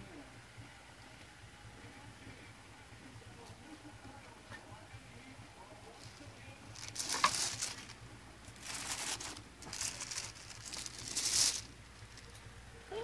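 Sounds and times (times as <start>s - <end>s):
rustling against microphone: 6.0s - 12.4s.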